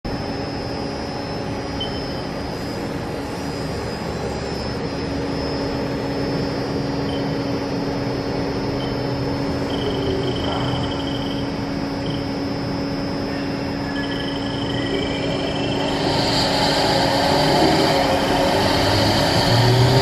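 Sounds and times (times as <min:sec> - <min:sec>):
machine hum with high whine: 0:00.0 - 0:20.0
short high beeps: 0:01.8 - 0:02.3.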